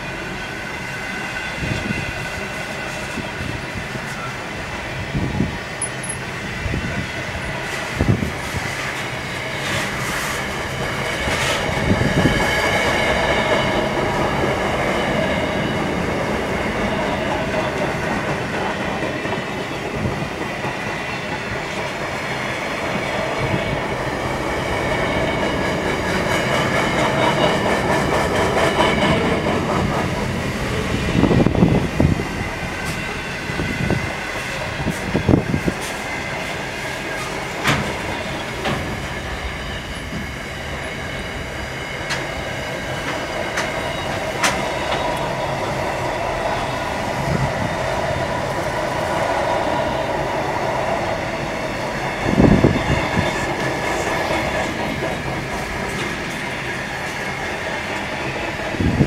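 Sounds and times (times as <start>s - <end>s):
train wheels clattering on rails: 5.2s - 59.0s
high wheel squeal: 32.8s - 47.7s.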